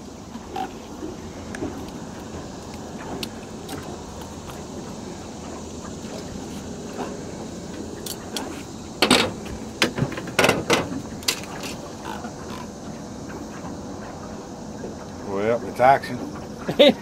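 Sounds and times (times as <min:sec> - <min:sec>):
knocks and clatters on a boat: 0:00.0 - 0:12.7
steady background hiss: 0:00.0 - 0:17.0.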